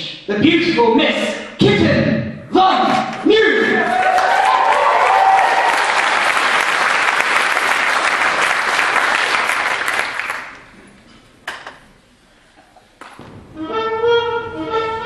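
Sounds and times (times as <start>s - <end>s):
audience applauding: 3.8s - 10.7s.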